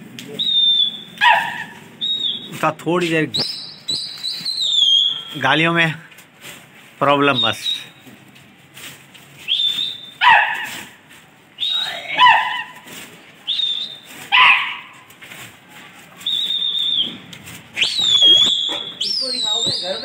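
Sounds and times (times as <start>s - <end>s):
sharp high whistles: 0.3s - 1.3s, 2.0s - 2.7s, 3.3s - 5.6s, 7.3s - 8.1s, 9.4s - 10.3s, 11.6s - 12.1s, 13.5s - 14.2s, 16.2s - 20.0s
man calling with falling cries: 4.2s - 5.9s, 11.6s - 12.8s, 17.8s - 20.0s.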